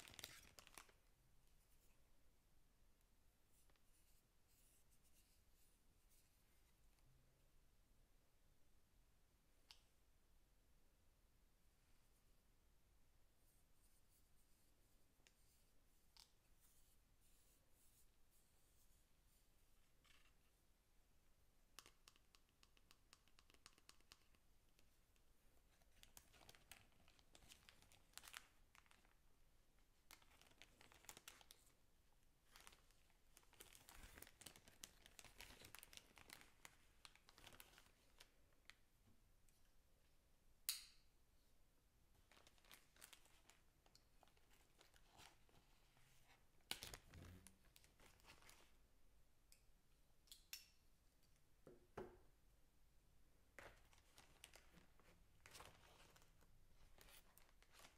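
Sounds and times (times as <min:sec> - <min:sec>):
plastic bag crinkling: 0:32.5 - 0:38.2, 0:42.3 - 0:43.6, 0:53.6 - 0:57.9.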